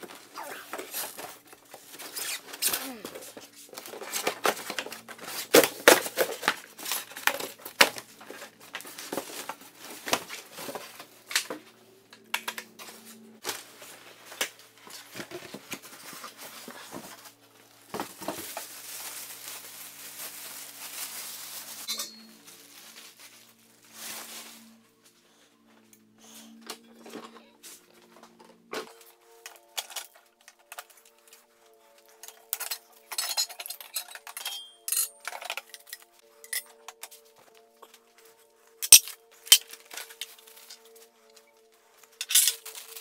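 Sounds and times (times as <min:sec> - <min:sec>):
packaging crinkling and tearing: 0:13.4 - 0:24.7, 0:42.0 - 0:43.0.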